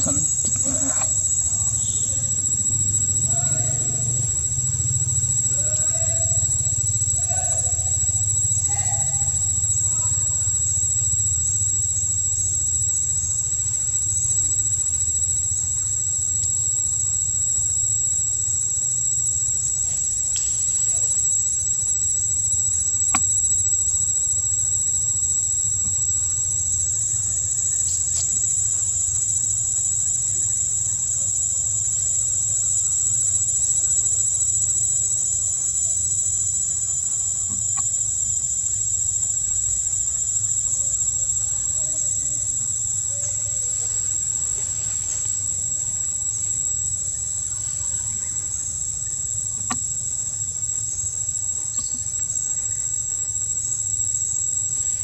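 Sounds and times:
insects droning: 0:00.0 - 0:55.0.

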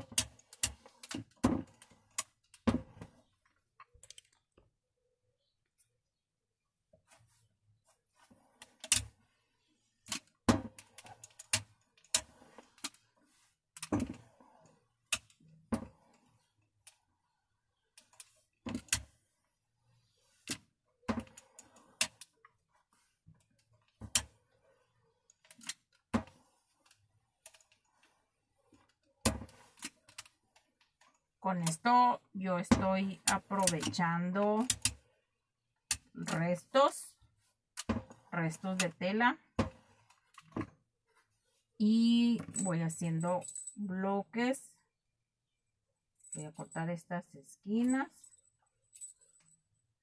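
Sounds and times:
soft handling noise: 0:06.9 - 0:32.0, 0:33.6 - 0:43.8, 0:45.9 - 0:46.9.

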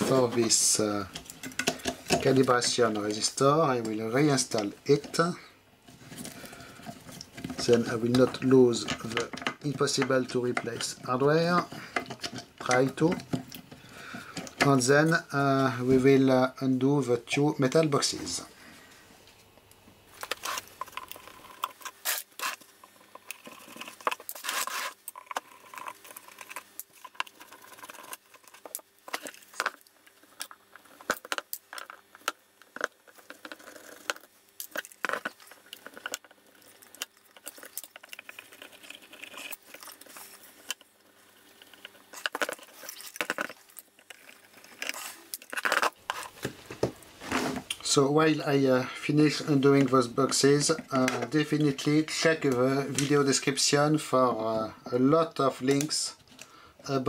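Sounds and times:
small clicks and scrapes: 0:00.0 - 0:03.2, 0:05.9 - 0:14.7, 0:19.3 - 0:47.8.

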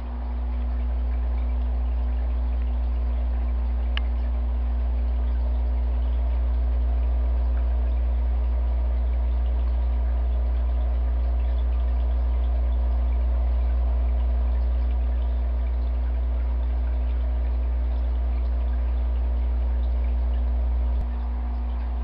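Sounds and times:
aquarium pump humming: 0:00.0 - 0:22.0
water trickling and bubbling: 0:00.0 - 0:22.0.

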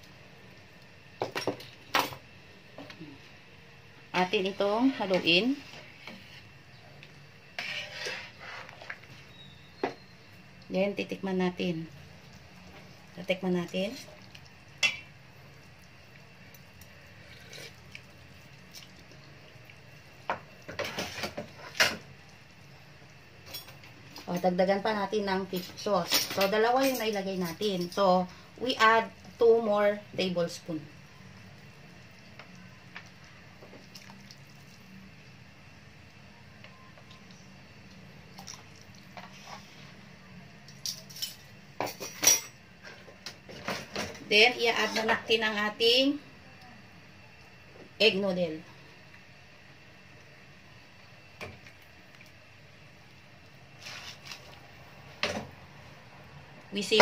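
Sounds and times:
faint low hum: 0:00.0 - 0:57.0
metal kitchenware clinking on pot: 0:14.8 - 0:15.1.

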